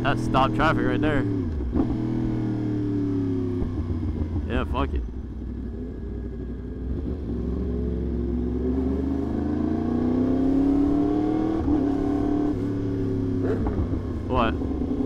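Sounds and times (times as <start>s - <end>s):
motorcycle engine accelerating: 0.0s - 15.0s
low rumble: 13.4s - 15.0s.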